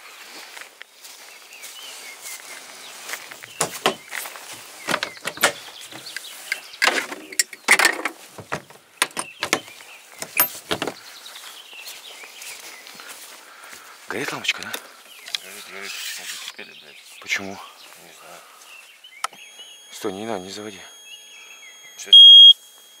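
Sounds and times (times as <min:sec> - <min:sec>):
irregular knocks and clicks: 0:03.6 - 0:04.0, 0:04.9 - 0:11.0.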